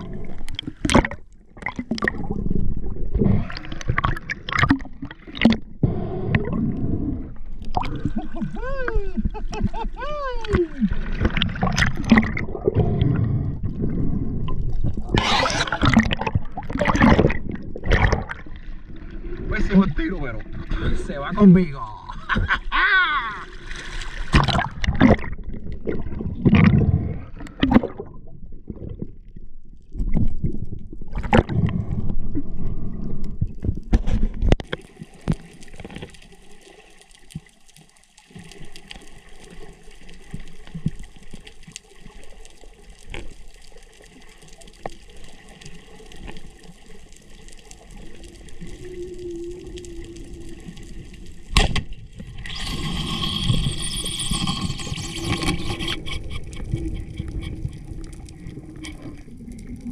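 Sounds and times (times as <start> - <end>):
muffled underwater hiss: 12.6 - 16.1, 52.2 - 59.9.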